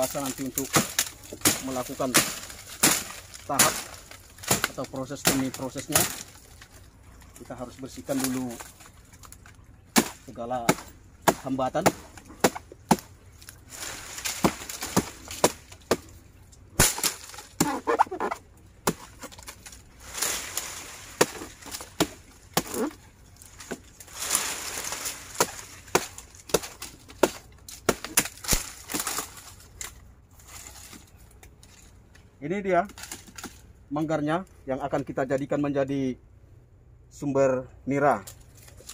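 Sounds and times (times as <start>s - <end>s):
machete chopping: 0.0s - 6.4s, 9.9s - 13.2s, 13.9s - 16.2s, 16.8s - 23.0s, 23.6s - 29.9s
dry leaves crackling and rustling: 0.0s - 33.8s, 38.2s - 38.9s.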